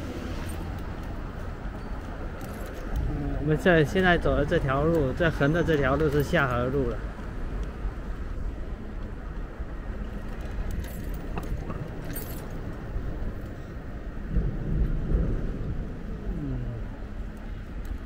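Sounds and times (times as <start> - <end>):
street traffic: 0.0 - 18.0
light clicks and rattles: 0.5 - 7.8, 9.0 - 13.6
steady low rumble: 6.8 - 18.0.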